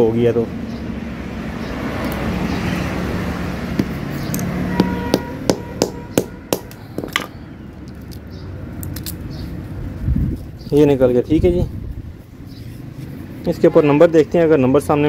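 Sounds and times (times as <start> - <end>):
hammer knocking plastic casing: 3.8 - 4.0, 4.8 - 7.3.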